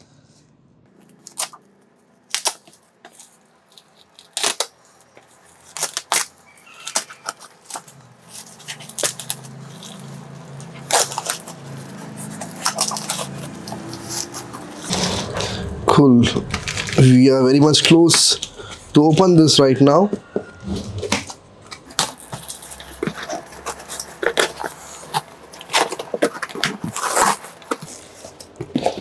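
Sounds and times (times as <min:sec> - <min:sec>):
plastic sack tearing: 0:01.0 - 0:15.6, 0:16.4 - 0:17.2, 0:21.1 - 0:29.0
low steady hum: 0:14.4 - 0:26.1.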